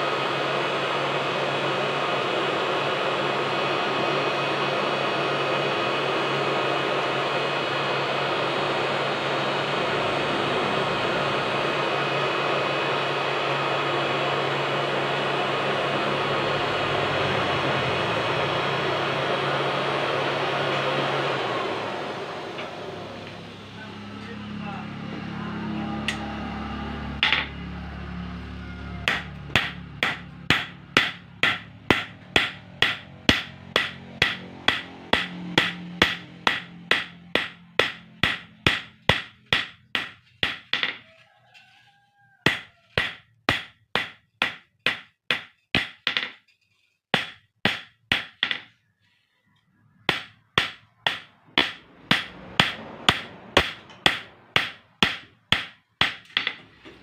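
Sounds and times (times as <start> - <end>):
hammer ringing on anvil: 29.1 - 41.0, 50.1 - 56.6.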